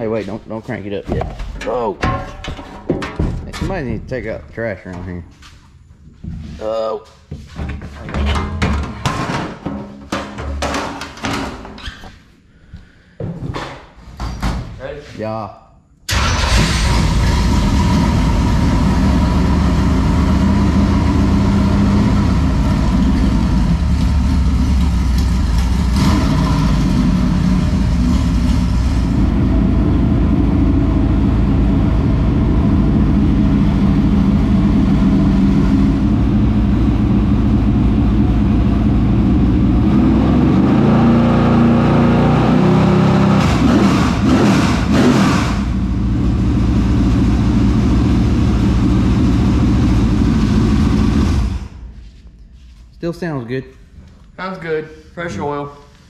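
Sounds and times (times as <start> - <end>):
race car engine idling and revving: 16.2 - 52.0.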